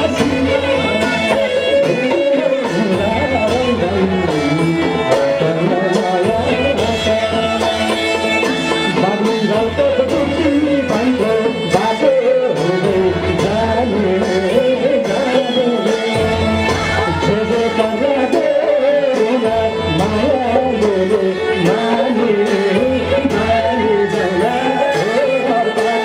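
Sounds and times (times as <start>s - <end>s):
drums: 0.0s - 26.0s
man singing into a microphone: 0.0s - 26.0s.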